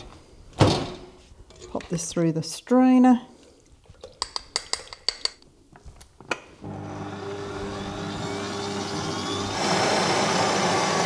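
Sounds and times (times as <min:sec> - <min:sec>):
stand mixer motor running: 0:06.6 - 0:11.0.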